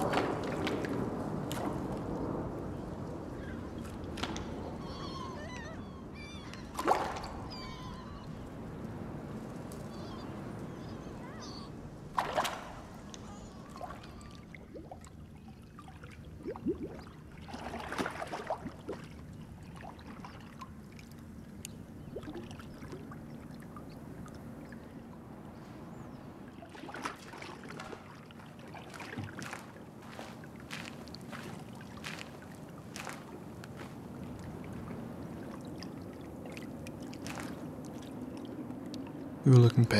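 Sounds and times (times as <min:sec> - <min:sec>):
short scuffs and crunches: 0:29.3 - 0:34.0.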